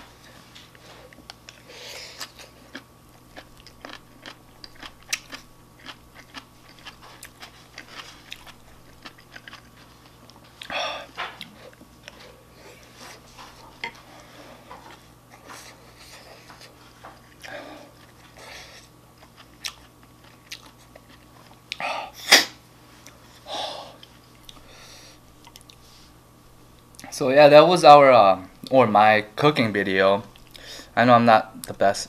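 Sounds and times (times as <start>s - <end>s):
person chewing food: 0.3s - 21.9s, 23.0s - 26.1s, 30.3s - 30.7s.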